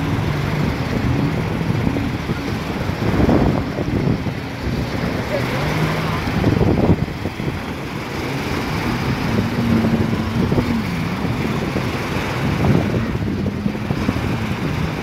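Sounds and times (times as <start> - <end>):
jet ski engine: 0.0 - 15.0
surf: 0.0 - 15.0
wind: 0.0 - 15.0.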